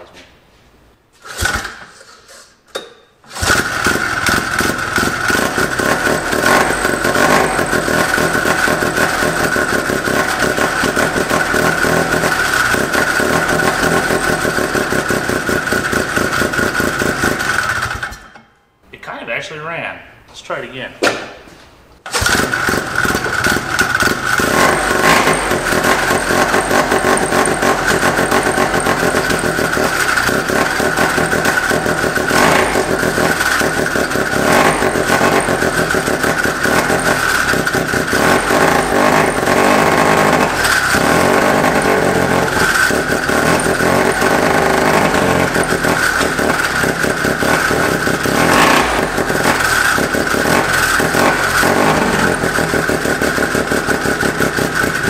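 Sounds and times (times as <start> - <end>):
rotary engine running unevenly: 3.4 - 18.1, 22.2 - 55.0.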